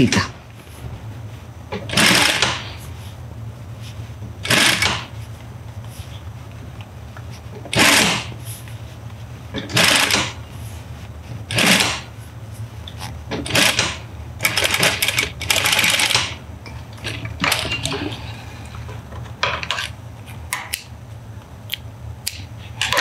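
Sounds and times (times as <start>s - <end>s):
sewing machine rattling: 1.7s - 2.8s, 4.4s - 5.2s, 7.7s - 8.4s, 9.6s - 10.4s, 11.5s - 12.1s, 13.4s - 16.4s, 17.0s - 18.2s
sewing machine motor hum: 1.7s - 3.1s, 4.4s - 5.2s, 7.5s - 8.5s, 9.5s - 10.6s, 11.4s - 12.2s, 13.2s - 19.4s.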